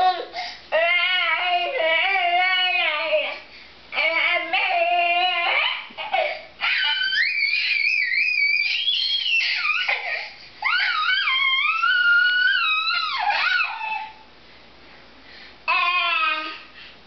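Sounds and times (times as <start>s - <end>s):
toddler squealing: 4.0s - 14.2s.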